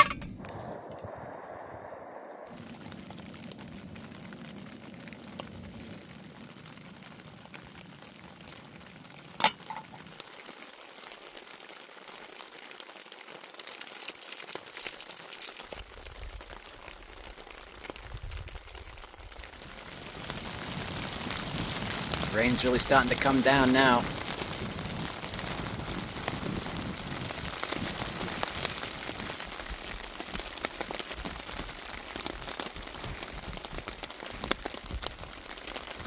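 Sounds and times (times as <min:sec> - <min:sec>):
metal clink: 0:00.0 - 0:00.4, 0:09.4 - 0:09.9.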